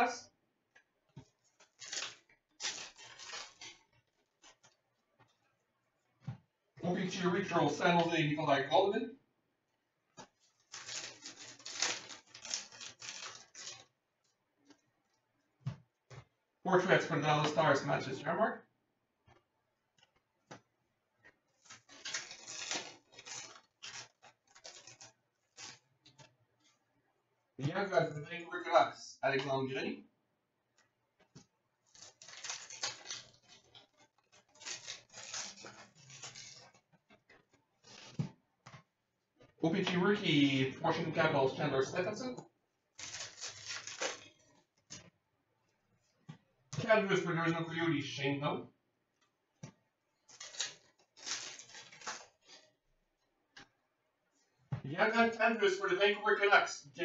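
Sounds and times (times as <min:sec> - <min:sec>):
cards shuffling and rustling: 0:01.2 - 0:04.8, 0:10.2 - 0:14.0, 0:21.6 - 0:26.8, 0:31.3 - 0:38.9, 0:43.0 - 0:45.1, 0:49.6 - 0:52.7.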